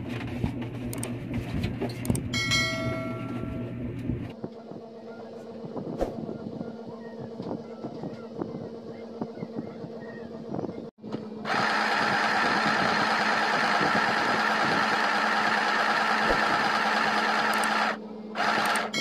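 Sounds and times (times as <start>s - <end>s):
sewing machine running: 11.5s - 19.0s.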